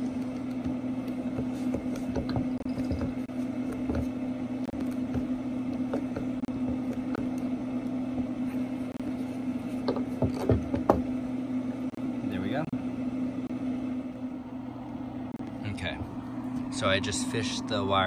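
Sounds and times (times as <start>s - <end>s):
grill motor hum: 0.0s - 18.0s
tool knocking on deck: 9.9s - 11.1s.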